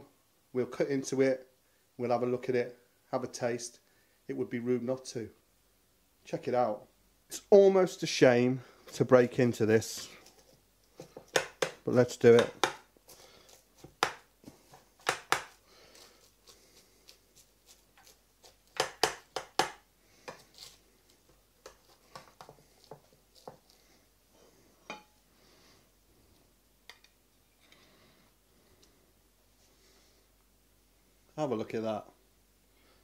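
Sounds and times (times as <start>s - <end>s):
knife cutting crisp pastry: 13.5s - 19.4s, 20.2s - 23.8s.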